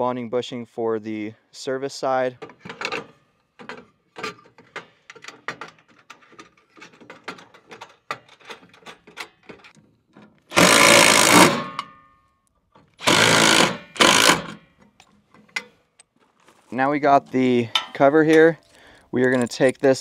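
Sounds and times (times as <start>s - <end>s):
small metal parts rattling: 2.4s - 9.8s, 17.6s - 20.0s
cordless driver running: 10.5s - 11.6s, 13.0s - 14.6s
metallic ring: 11.6s - 12.3s.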